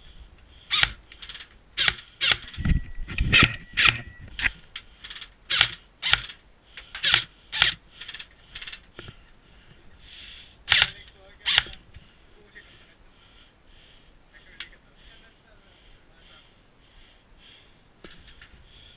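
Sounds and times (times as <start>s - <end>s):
airsoft rifle firing: 10.7s - 11.8s.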